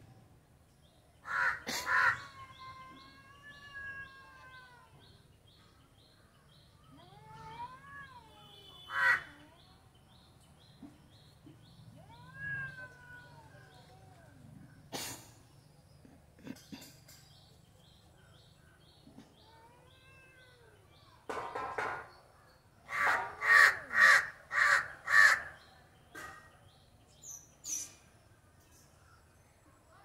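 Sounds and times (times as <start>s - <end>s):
kitten harsh calls: 12.0s - 13.7s
kitten meowing: 12.0s - 13.9s.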